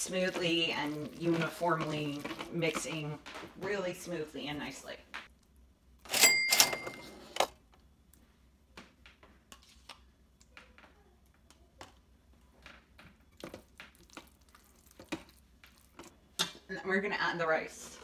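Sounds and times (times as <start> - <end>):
spatula scraping and stirring: 0.0 - 5.0, 9.5 - 10.1, 13.2 - 16.7.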